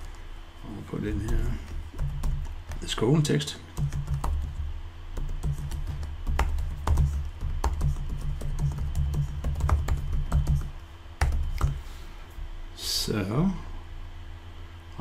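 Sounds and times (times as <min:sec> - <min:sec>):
computer keyboard typing: 0:01.1 - 0:03.0, 0:03.7 - 0:11.8.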